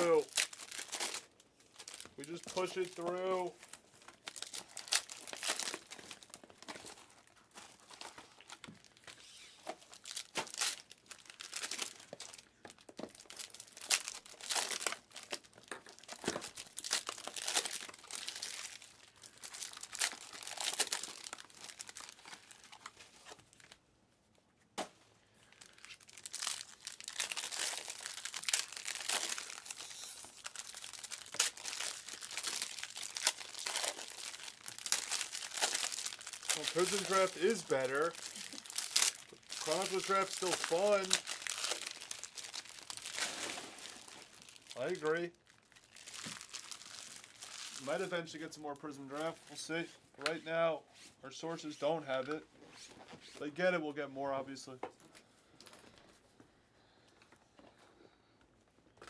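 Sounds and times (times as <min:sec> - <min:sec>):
foil wrappers tearing and crinkling: 0:00.0 - 0:23.8, 0:25.5 - 0:48.4.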